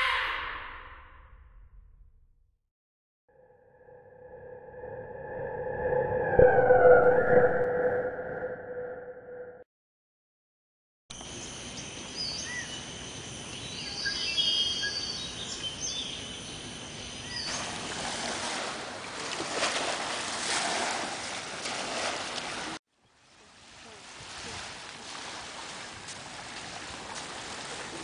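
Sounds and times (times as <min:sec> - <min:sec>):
birds chirping: 0:11.4 - 0:17.6.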